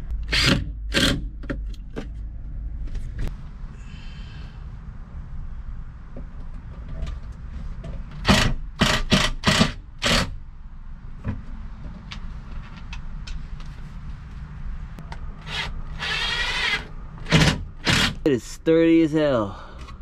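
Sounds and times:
low steady rumble: 0:00.0 - 0:20.0
cordless drill driving screws: 0:08.2 - 0:10.3, 0:15.4 - 0:18.2.

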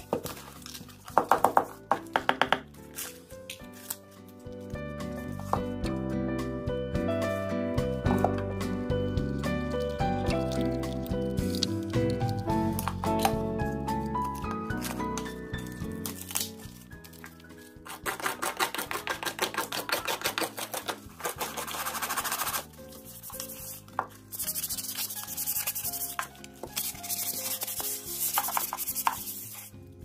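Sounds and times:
soft background music: 0:00.0 - 0:30.0
sandpaper rasping on gourd: 0:17.9 - 0:26.2, 0:26.8 - 0:29.7.

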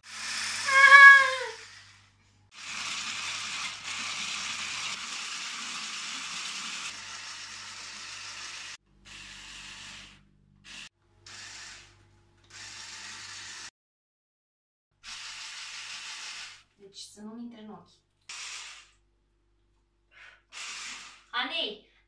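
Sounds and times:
stick blender motor whir: 0:00.0 - 0:13.7, 0:15.0 - 0:16.6, 0:20.5 - 0:21.3.

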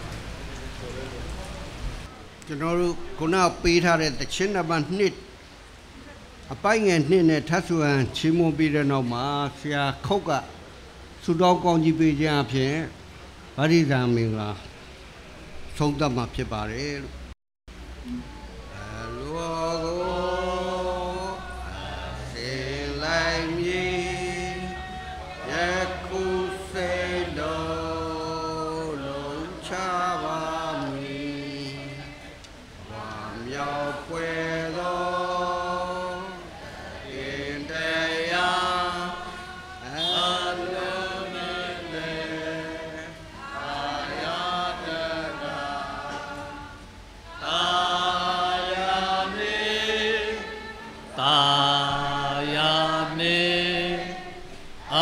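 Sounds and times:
congregation singing a hymn: 0:18.7 - 0:55.0.

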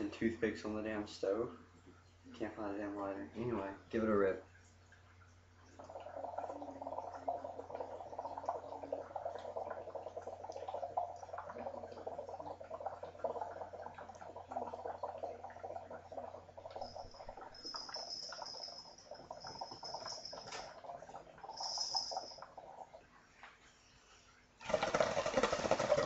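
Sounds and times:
water bubbling: 0:04.9 - 0:23.1
thin high tone: 0:16.7 - 0:20.8, 0:21.5 - 0:22.5.

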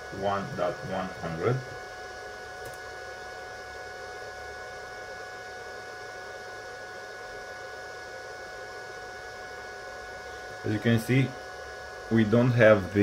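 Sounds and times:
faint high whining tones: 0:00.0 - 0:02.8
fan and electrical hum: 0:00.0 - 0:13.0.

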